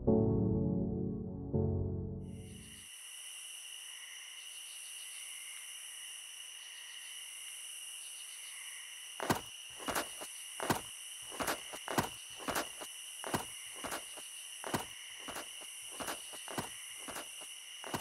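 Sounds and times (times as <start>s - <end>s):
night insects chirring: 2.3s - 18.0s
footsteps on grass: 9.2s - 18.0s.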